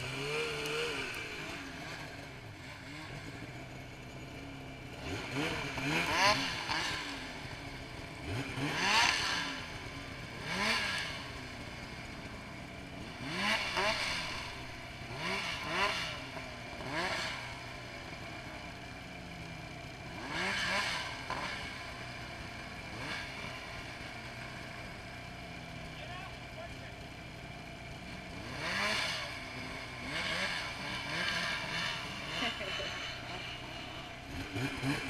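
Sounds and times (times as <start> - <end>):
snowmobile engine revving: 0.0 - 35.0
snowmobile idling: 0.0 - 35.0.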